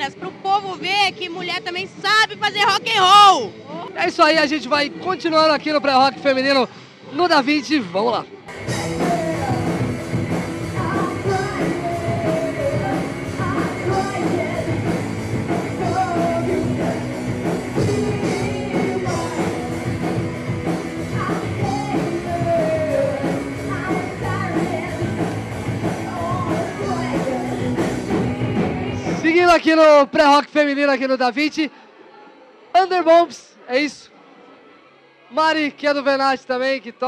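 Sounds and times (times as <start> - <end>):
electric guitar: 8.5 - 29.2
rock band playing live: 8.5 - 29.2
woman singing into microphone: 10.6 - 15.0, 17.8 - 20.0, 21.1 - 29.2.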